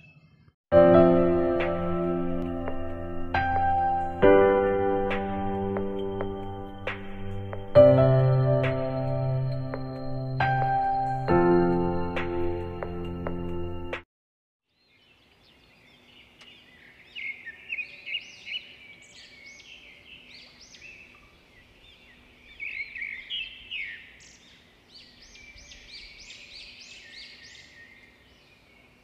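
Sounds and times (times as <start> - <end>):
dawn chorus of birds chirping: 0.0 - 0.6, 14.7 - 29.0.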